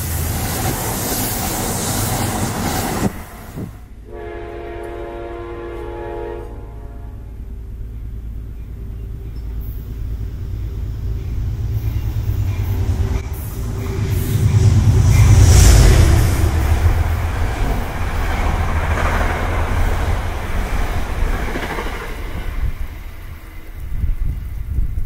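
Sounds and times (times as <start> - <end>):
rumble of approaching train: 0.0 - 25.0
train rushing past: 0.0 - 25.0
train horn chord: 4.0 - 7.5.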